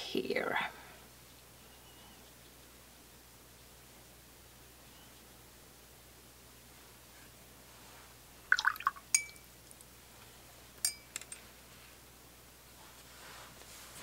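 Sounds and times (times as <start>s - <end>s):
brush clinking on glass jar: 9.1s - 9.5s, 10.8s - 11.2s.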